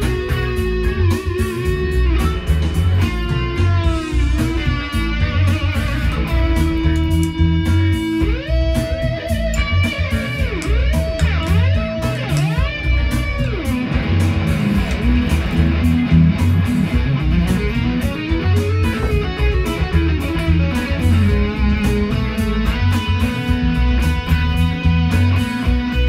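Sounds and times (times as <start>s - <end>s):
bass: 0.0s - 26.0s
electric guitar lead: 0.0s - 26.0s
steady drum beat: 0.0s - 26.0s.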